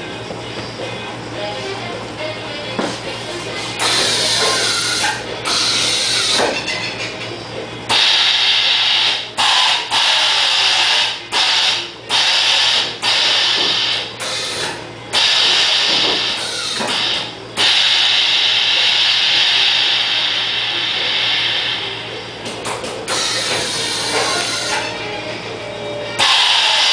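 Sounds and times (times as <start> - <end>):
air valves hissing in bursts: 7.9 - 22.0, 26.2 - 26.9.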